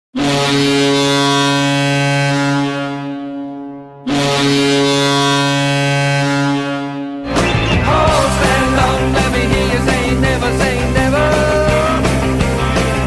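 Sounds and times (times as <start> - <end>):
low goal horn blast: 0.2 - 9.2.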